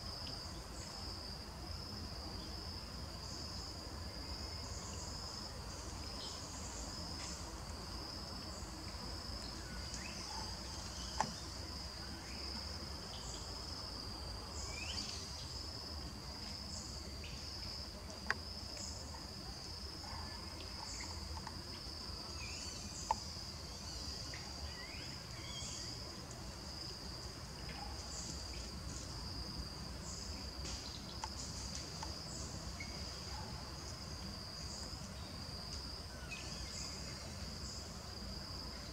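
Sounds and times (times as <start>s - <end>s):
insects trilling: 0.0s - 38.9s.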